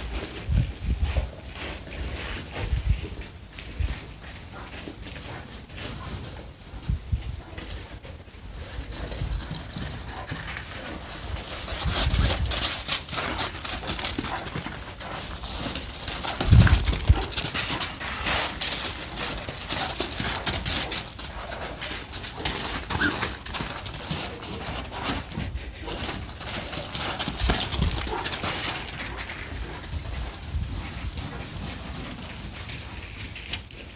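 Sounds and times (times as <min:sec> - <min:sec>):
footsteps crunching on icy sleet: 0:00.0 - 0:33.9.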